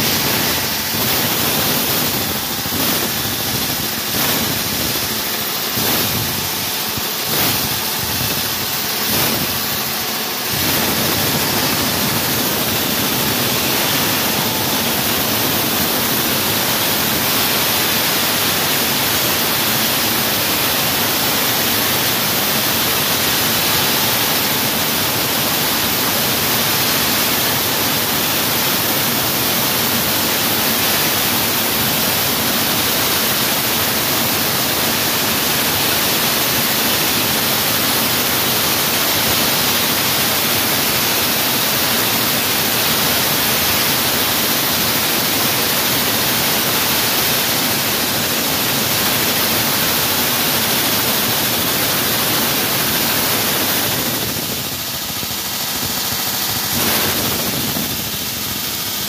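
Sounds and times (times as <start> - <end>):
motor hum: 0.0 - 18.0
wall saw cutting concrete: 0.0 - 59.0.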